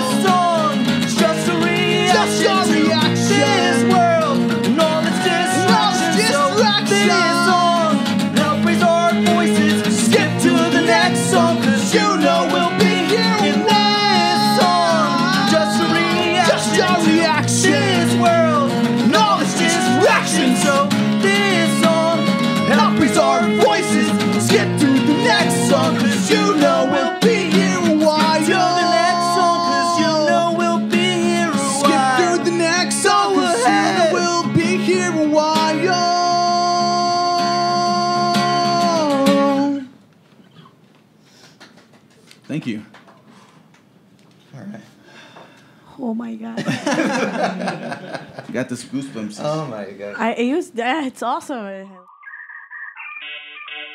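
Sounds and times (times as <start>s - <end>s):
acoustic bass guitar: 0.0s - 39.9s
strummed acoustic guitar: 0.0s - 39.9s
man singing: 0.0s - 40.0s
violin: 1.2s - 35.7s
bowed violin: 19.1s - 29.6s.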